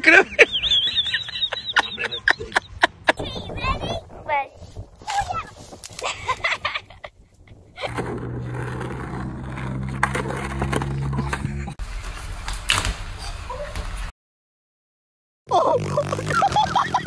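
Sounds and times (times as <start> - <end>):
skateboard rumbling on asphalt: 3.2 - 12.4.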